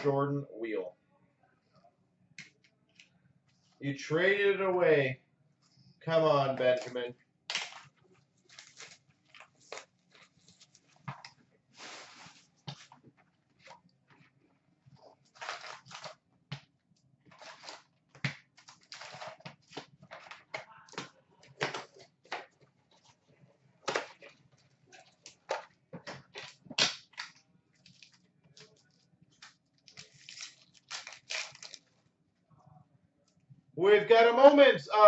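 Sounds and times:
crinkling pack wrappers: 0:06.7 - 0:14.3, 0:15.0 - 0:16.2, 0:17.3 - 0:22.4, 0:26.2 - 0:32.0.

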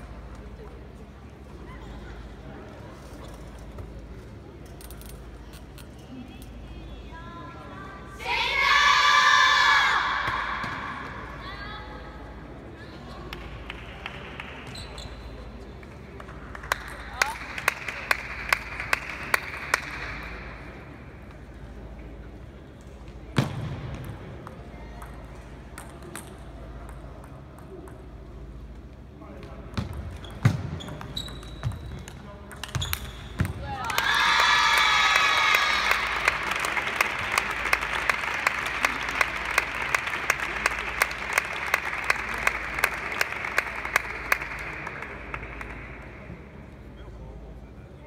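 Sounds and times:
low hall hum: 0:00.0 - 0:48.0
applause: 0:13.3 - 0:14.7, 0:16.1 - 0:20.4, 0:33.8 - 0:46.3
table tennis hit with ring: 0:29.8 - 0:33.6.

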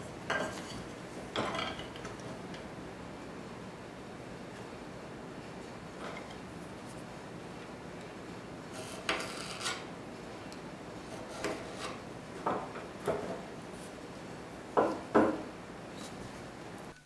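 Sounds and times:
chisel scraping across wood: 0:08.7 - 0:09.9, 0:11.0 - 0:12.0.

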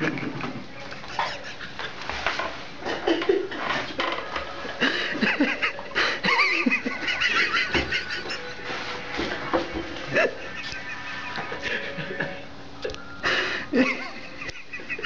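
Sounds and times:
people laughing: 0:00.0 - 0:02.0, 0:04.7 - 0:09.4, 0:10.0 - 0:12.5, 0:13.5 - 0:15.0.

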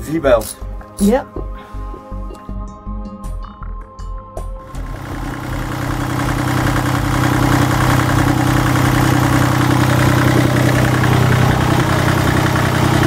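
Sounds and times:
diesel engine idling: 0:04.6 - 0:13.0.

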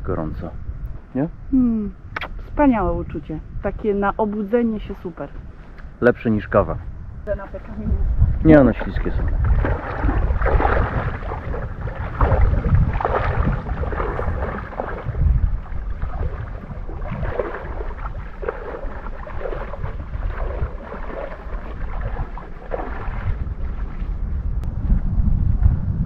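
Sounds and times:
wind rumble on microphone: 0:00.0 - 0:26.0
footsteps wading through water: 0:08.7 - 0:25.1.

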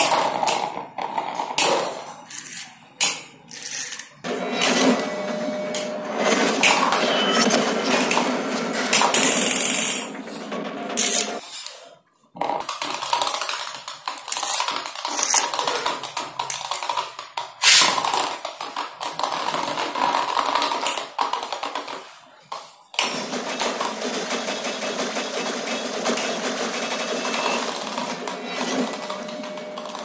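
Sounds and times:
spinning tops whirring and rattling: 0:01.6 - 0:11.6, 0:12.9 - 0:16.9, 0:17.5 - 0:18.4.

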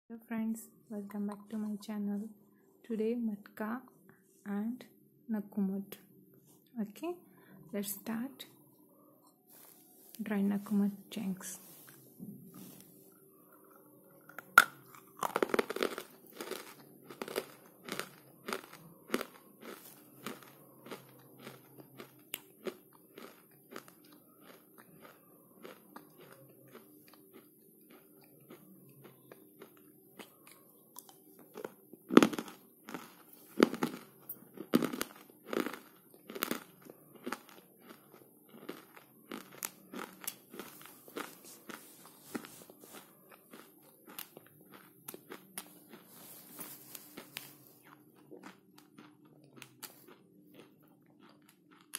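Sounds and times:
crunchy chewing: 0:08.9 - 0:51.9.

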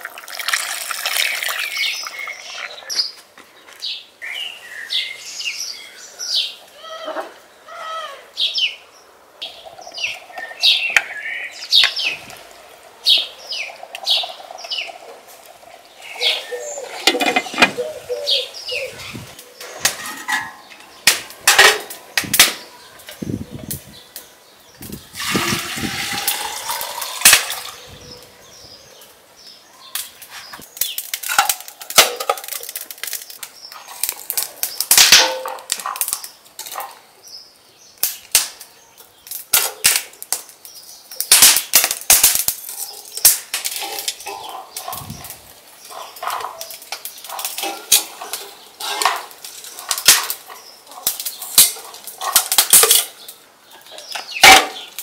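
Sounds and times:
wood fire crackling and popping: 0:20.7 - 0:25.3, 0:29.9 - 0:37.0, 0:38.0 - 0:55.0.

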